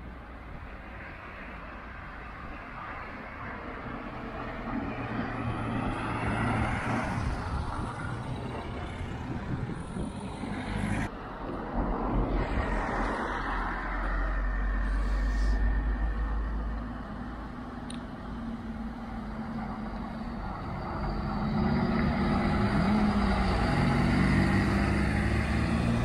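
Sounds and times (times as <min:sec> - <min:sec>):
cars passing: 0:00.0 - 0:26.0
heavy vehicle engine rumble: 0:03.7 - 0:26.0.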